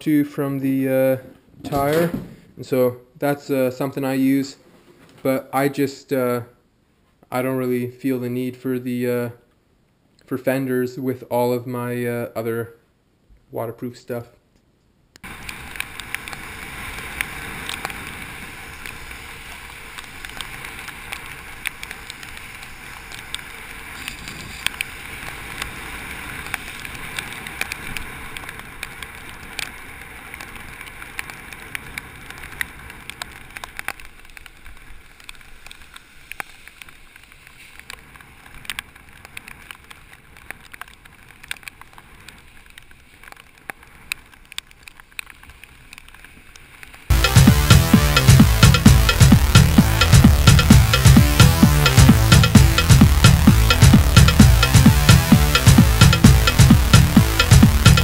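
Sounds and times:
bicycle tyres hissing on wet road: 15.3 - 47.1
sharp ticks: 47.1 - 58.0.

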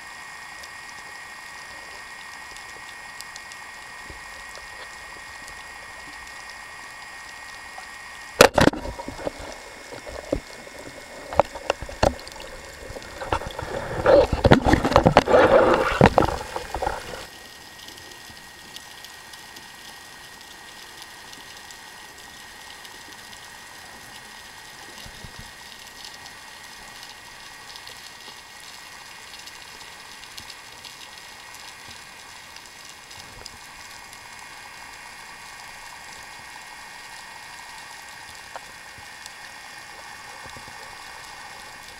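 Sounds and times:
faint underwater hiss: 0.0 - 41.9
underwater bubbling and rushing: 0.0 - 41.9
sharp underwater knock: 8.4 - 9.0.

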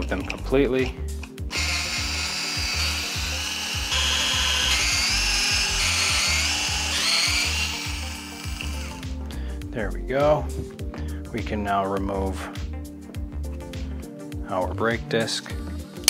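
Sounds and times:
background music with steady beat: 0.0 - 16.0
cordless drill motor whining: 1.5 - 9.0.

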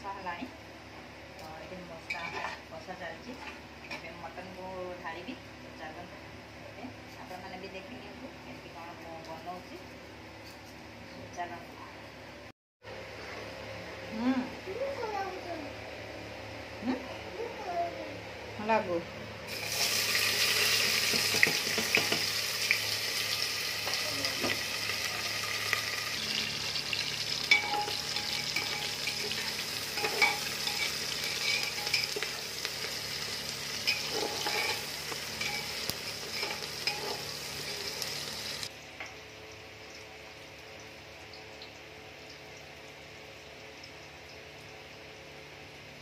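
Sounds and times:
onions sizzling in oil: 19.5 - 38.7.

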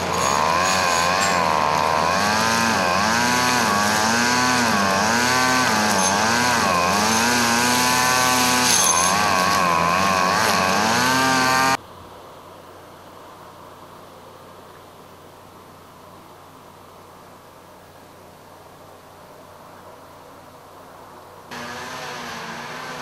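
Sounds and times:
verge mower machine drone: 0.0 - 11.8, 21.5 - 23.0.

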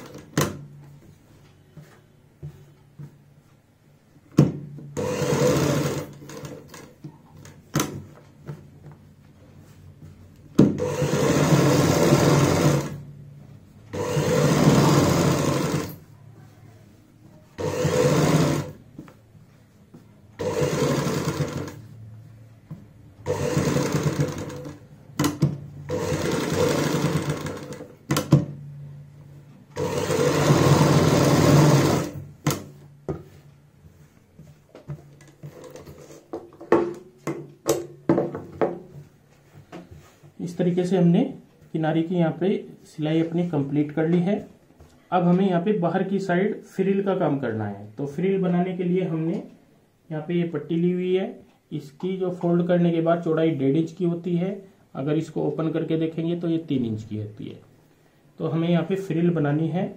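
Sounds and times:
sewing machine stitching: 5.0 - 7.0, 10.8 - 13.0, 13.9 - 16.0, 17.6 - 18.8, 20.4 - 21.9, 23.2 - 28.3, 29.7 - 32.6.

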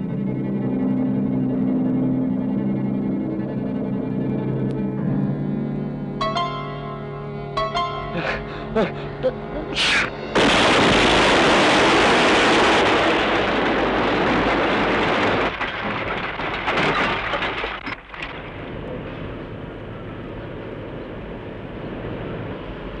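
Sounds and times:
rubble sliding and falling: 10.9 - 18.7.

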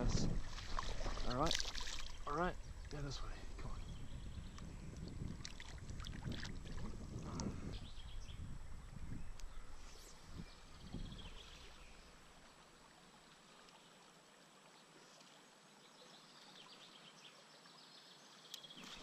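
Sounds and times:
river water flowing: 0.0 - 3.7, 9.6 - 19.0.

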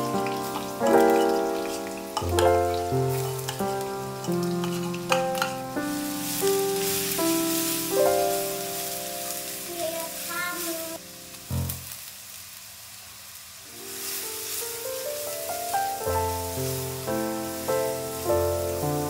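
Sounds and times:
shallots sizzling in hot oil: 0.0 - 19.0
spatula stirring in wok: 3.1 - 7.8.

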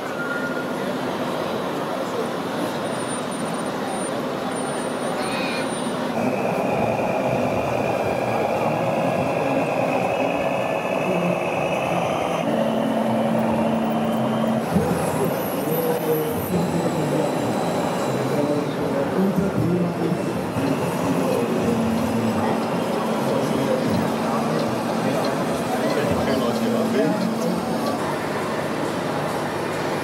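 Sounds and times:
crowded hall din: 0.0 - 30.0
model truck engine: 1.0 - 30.0
thin whine: 5.8 - 28.5.

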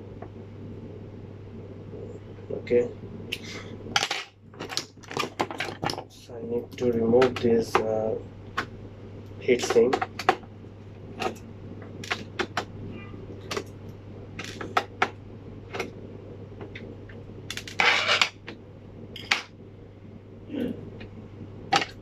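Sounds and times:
steady low hum: 0.0 - 22.0
scraping rustle: 17.6 - 18.4.

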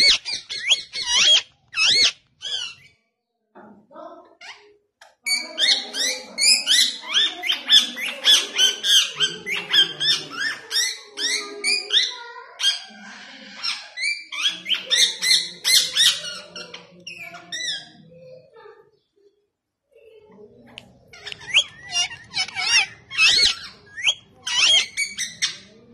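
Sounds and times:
parakeet shrill calls: 0.0 - 2.9, 21.2 - 25.7.

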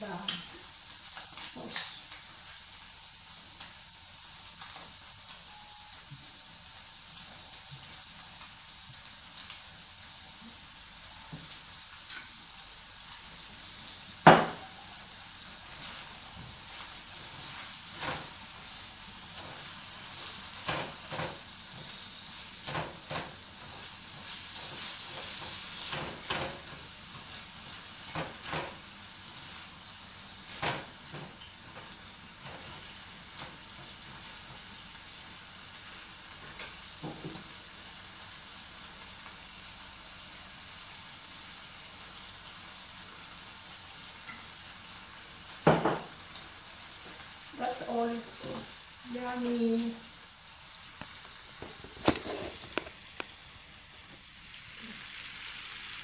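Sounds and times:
tofu frying in a wok: 0.0 - 56.0
spatula scraping and tapping pan: 51.0 - 53.3.

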